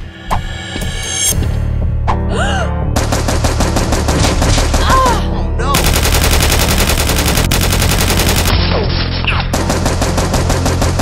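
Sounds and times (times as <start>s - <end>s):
machine-gun fire: 3.0s - 5.1s, 5.7s - 8.6s, 9.5s - 11.0s.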